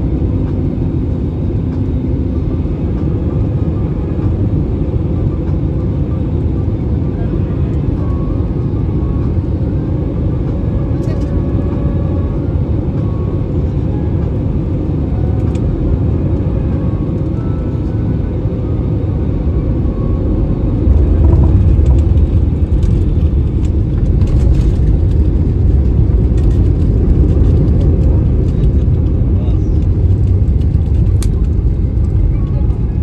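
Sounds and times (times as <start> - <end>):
engine and airflow rush: 0.0 - 33.0
airliner touchdown rumble: 20.0 - 33.0.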